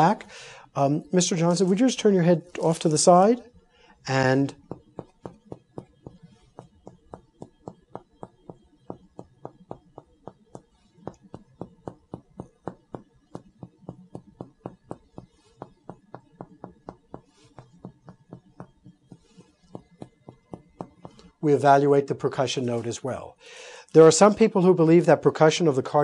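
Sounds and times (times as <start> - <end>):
finger tapping on chest: 4.5 - 21.4.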